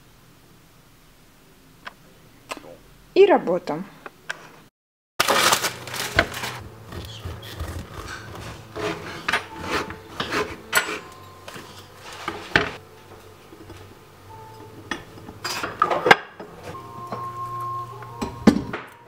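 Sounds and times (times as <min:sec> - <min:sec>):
paper bag rustling: 0:05.2 - 0:09.2
knife sawing through bread: 0:06.8 - 0:11.1.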